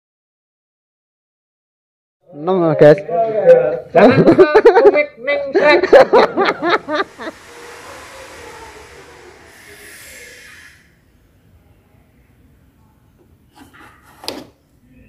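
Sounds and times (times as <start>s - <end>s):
steady hiss: 5.9s - 12.7s.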